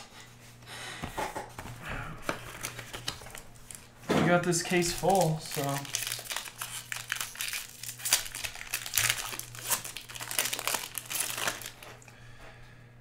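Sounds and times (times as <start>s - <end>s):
card pack wrapper crinkling: 2.2s - 12.0s.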